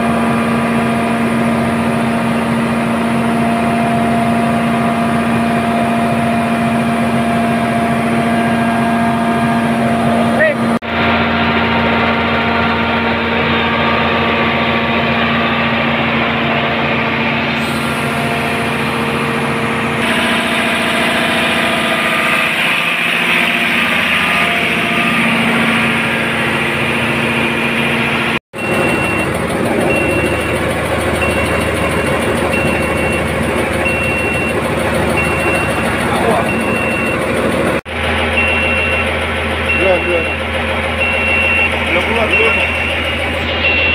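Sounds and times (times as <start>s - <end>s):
diesel generator running: 0.0s - 43.9s
high alarm beeps: 28.6s - 37.6s, 38.4s - 43.9s.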